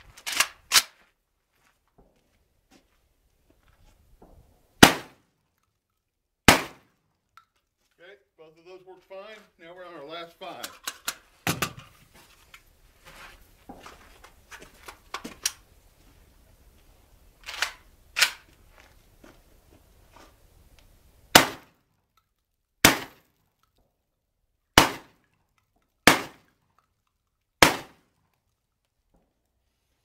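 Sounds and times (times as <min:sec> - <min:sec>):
gun handling clicks and clacks: 0:00.1 - 0:01.0, 0:05.3 - 0:06.2, 0:06.9 - 0:07.8, 0:10.5 - 0:12.7, 0:14.2 - 0:15.7, 0:17.4 - 0:18.6, 0:22.1 - 0:22.6, 0:23.4 - 0:24.2, 0:25.1 - 0:29.6
loud shotgun shots: 0:04.8 - 0:05.2, 0:06.5 - 0:06.9, 0:21.3 - 0:21.7, 0:22.8 - 0:23.2, 0:24.8 - 0:25.2, 0:26.0 - 0:26.4, 0:27.6 - 0:28.0.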